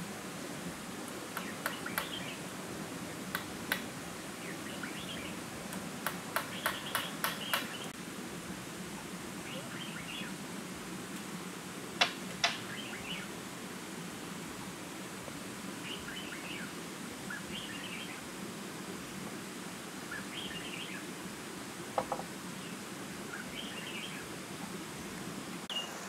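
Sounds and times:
forest background: 0:00.0 - 0:26.0
short chirping calls: 0:01.4 - 0:02.4, 0:04.4 - 0:05.4, 0:06.4 - 0:08.0
wood knocking on wood: 0:06.0 - 0:07.7, 0:22.0 - 0:22.3.

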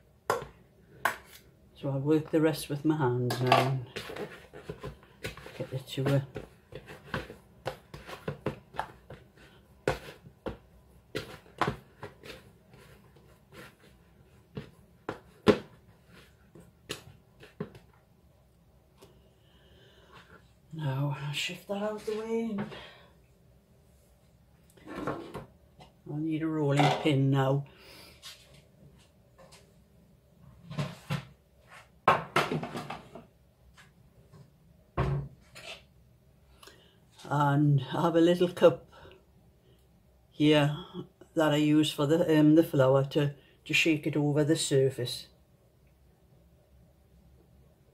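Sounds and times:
hands slapping dough in a bowl: 0:03.4 - 0:17.9.

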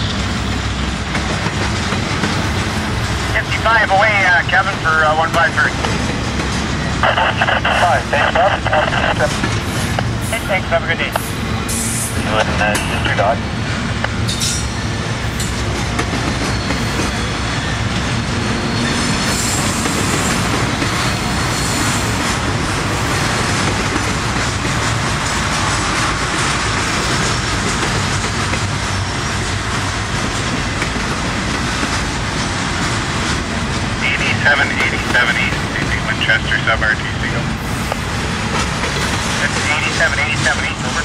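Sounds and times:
train wheels rolling on rails: 0:00.0 - 0:41.0.

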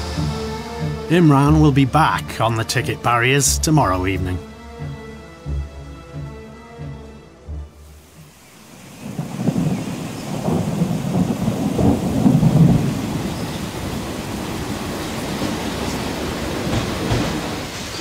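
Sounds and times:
steady rain: 0:00.0 - 0:06.3, 0:07.7 - 0:18.0
thunder rumbling: 0:08.6 - 0:17.8.

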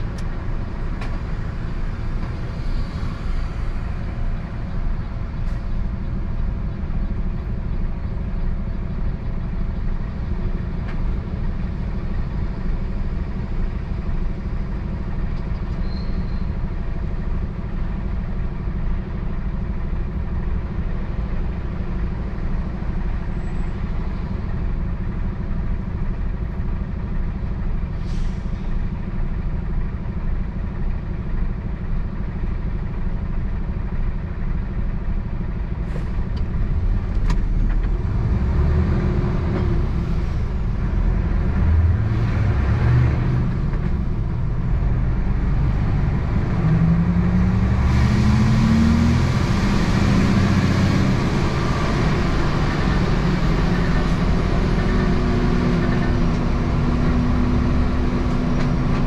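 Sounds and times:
road noise: 0:00.0 - 0:59.0
truck engine accelerating: 0:08.6 - 0:59.0.

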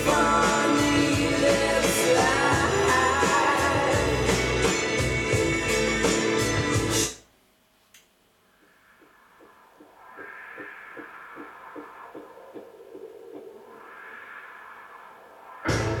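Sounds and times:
guitar music through speakers: 0:00.0 - 0:07.2, 0:15.7 - 0:16.0
soft beat music: 0:00.0 - 0:07.2.

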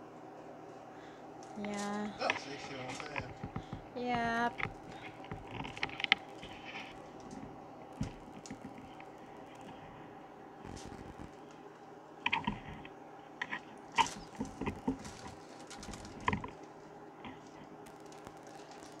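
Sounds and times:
foil crinkling: 0:01.6 - 0:10.0, 0:10.7 - 0:11.4, 0:13.5 - 0:19.0.

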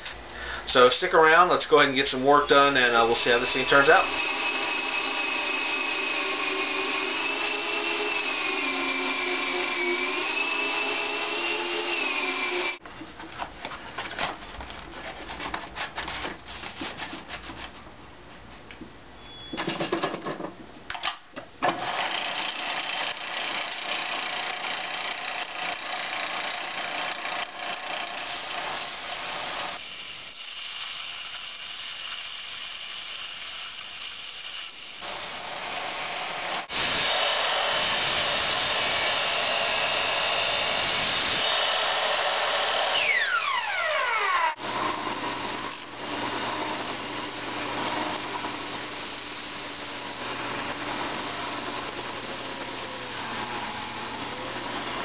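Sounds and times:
belt sander grinding wood: 0:29.8 - 0:35.0
belt sander humming: 0:29.8 - 0:35.0.

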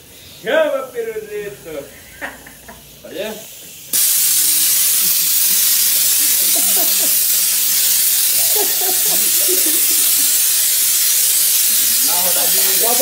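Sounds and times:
pressure sprayer hissing: 0:03.4 - 0:13.0.

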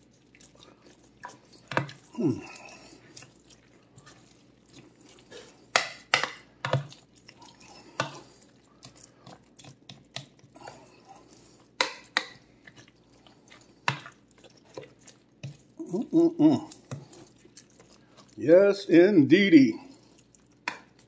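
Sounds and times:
wet mixture squelching: 0:00.0 - 0:21.0.

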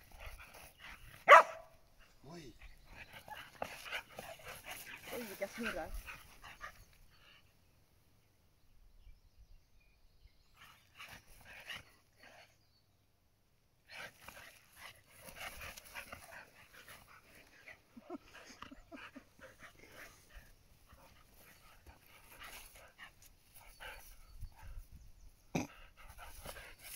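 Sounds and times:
dogs panting: 0:00.0 - 0:07.6, 0:10.6 - 0:12.6, 0:13.9 - 0:26.9
short dog vocal sounds: 0:25.5 - 0:26.2.

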